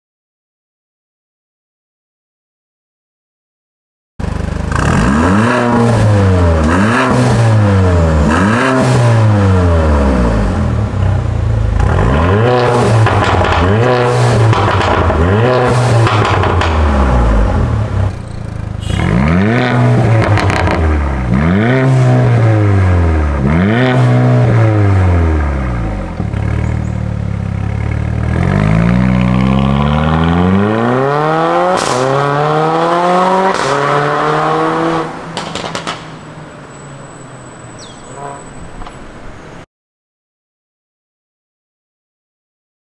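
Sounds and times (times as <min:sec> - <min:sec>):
car engine revving: 0:04.2 - 0:36.2
car accelerating away: 0:04.6 - 0:36.1.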